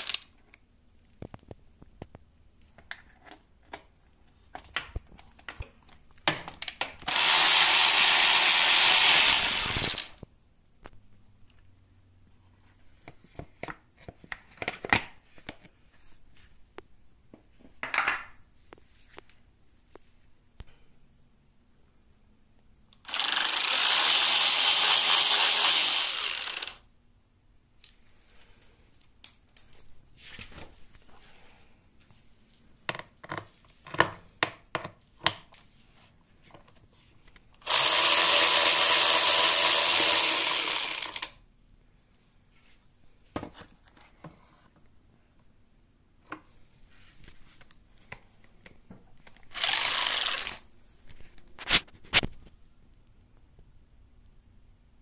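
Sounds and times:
metal parts clicking and knocking: 0:00.0 - 0:00.4, 0:09.1 - 0:10.2, 0:48.0 - 0:50.6
cordless drill running: 0:07.0 - 0:10.2, 0:23.0 - 0:26.8, 0:37.6 - 0:41.4, 0:49.4 - 0:50.6.

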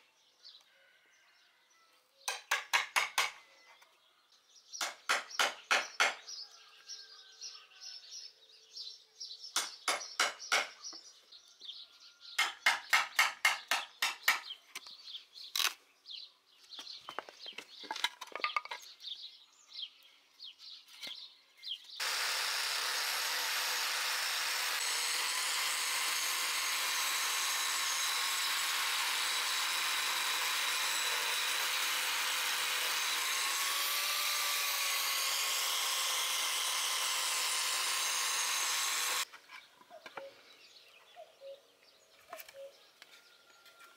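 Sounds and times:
angle grinder running: 0:22.0 - 0:39.3.

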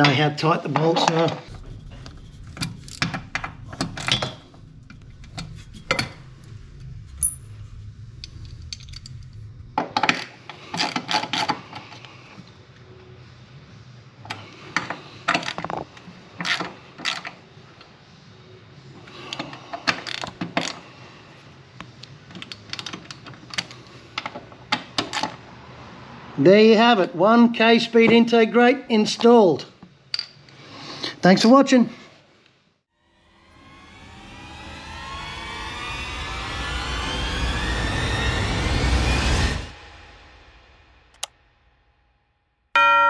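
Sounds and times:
low hum: 0:01.0 - 0:11.0, 0:33.0 - 0:43.0.

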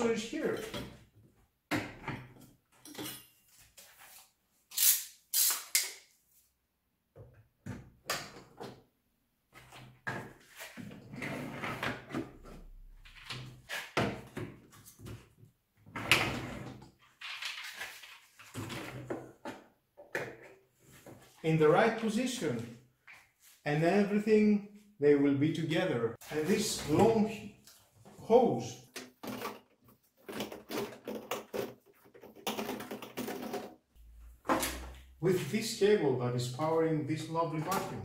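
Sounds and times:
vacuum accessories knocking and clacking: 0:28.9 - 0:33.8.

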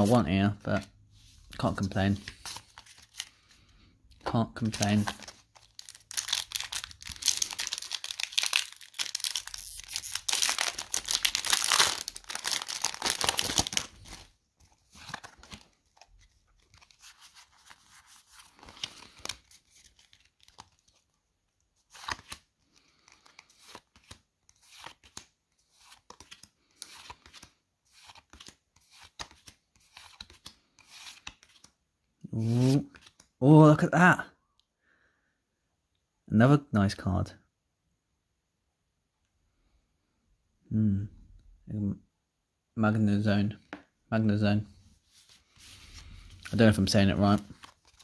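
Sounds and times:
trading cards clicking and rustling: 0:04.6 - 0:20.8
foil wrapper tearing and crinkling: 0:05.6 - 0:14.2.

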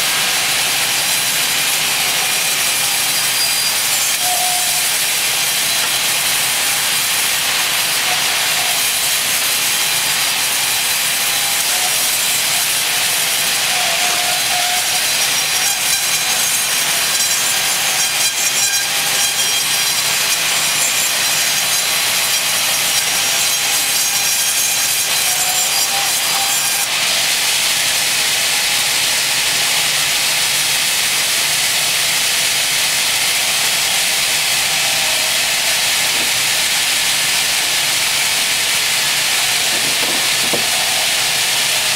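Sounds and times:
band saw cutting wood: 0:00.0 - 0:41.9
band saw running: 0:00.0 - 0:41.9.

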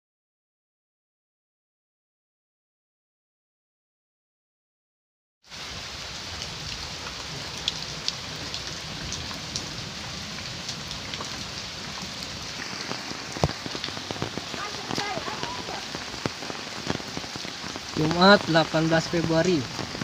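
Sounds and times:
heavy rain: 0:05.5 - 0:20.0
raindrops ticking on surfaces: 0:05.5 - 0:20.0.

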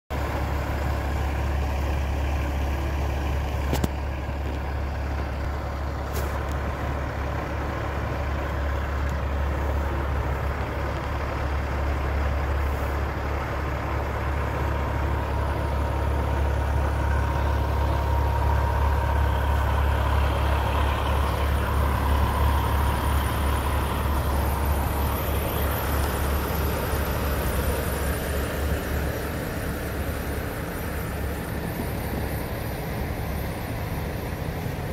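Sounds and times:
car engine rumble: 0:00.1 - 0:34.9.

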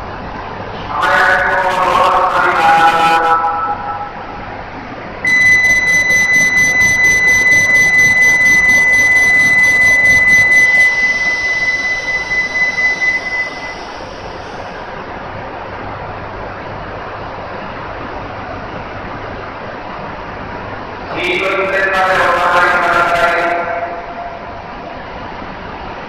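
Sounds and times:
low station hum: 0:00.0 - 0:26.0
high electronic tone: 0:05.3 - 0:14.4.

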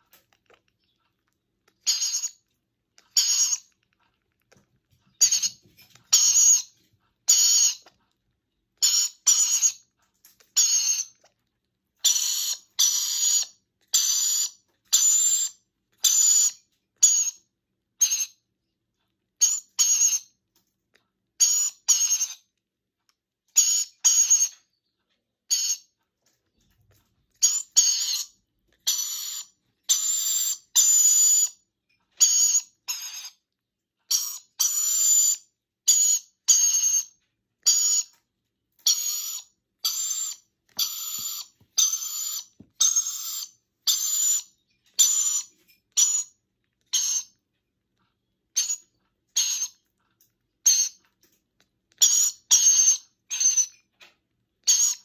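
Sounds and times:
young parrot begging calls: 0:01.8 - 0:02.4, 0:07.3 - 0:07.9, 0:08.8 - 0:09.8, 0:12.0 - 0:17.4, 0:23.6 - 0:24.6, 0:27.4 - 0:31.5, 0:34.1 - 0:38.2, 0:38.8 - 0:46.3, 0:46.9 - 0:47.4, 0:52.0 - 0:53.7, 0:54.6 - 0:55.0.

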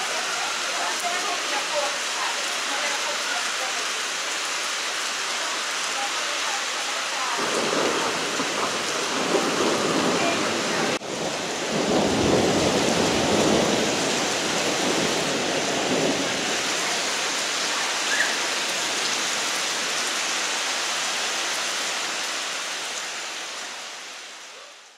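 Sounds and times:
heavy rain on pavement: 0:00.0 - 0:24.9
low rumble of thunder: 0:07.4 - 0:16.7.

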